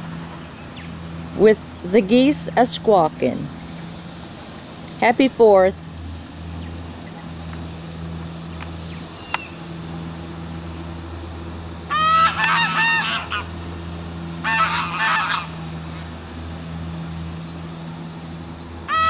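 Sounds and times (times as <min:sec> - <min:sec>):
low hum: 0:00.0 - 0:19.0
geese honking: 0:11.7 - 0:16.0.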